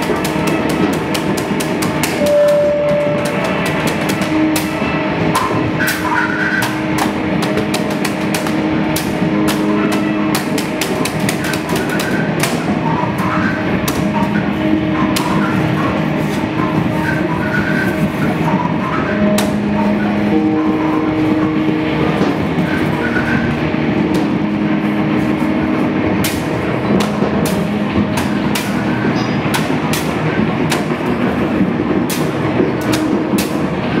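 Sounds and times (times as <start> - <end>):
held low tones: 0.0 - 34.0
noisy experimental music wash: 0.0 - 34.0.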